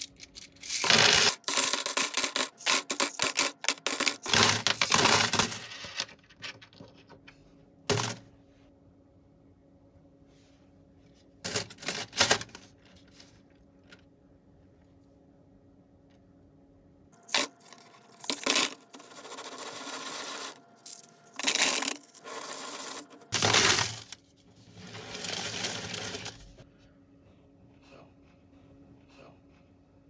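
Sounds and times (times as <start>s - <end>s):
coins clinking in cardboard can: 0.0s - 6.1s, 7.9s - 8.2s, 11.5s - 12.7s, 17.2s - 24.2s, 24.8s - 26.5s.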